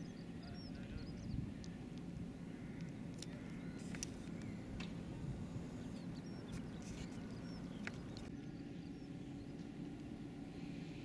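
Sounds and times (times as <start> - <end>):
high bird chirps: 0.0 - 1.8, 5.7 - 9.7
steady low hum: 0.0 - 11.0.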